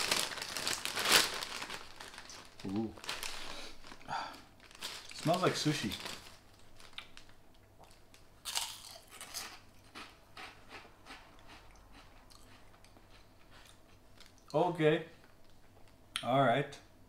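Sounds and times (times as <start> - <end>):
crunching cracker: 4.8 - 14.4.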